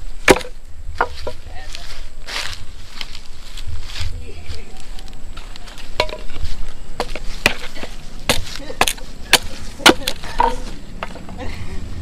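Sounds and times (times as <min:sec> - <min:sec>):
knife chopping wooden stick: 0:00.2 - 0:01.3, 0:07.0 - 0:07.7.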